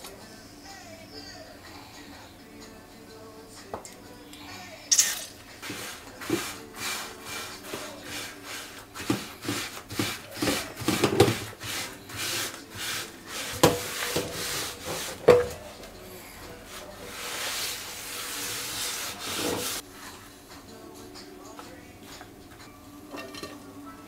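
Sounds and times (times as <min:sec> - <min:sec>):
rubbing paste on metal pan: 0:05.5 - 0:15.8, 0:16.5 - 0:20.1.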